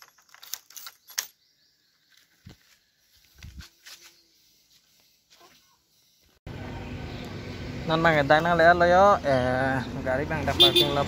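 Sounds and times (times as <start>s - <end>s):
keys jingling: 0.0s - 1.4s.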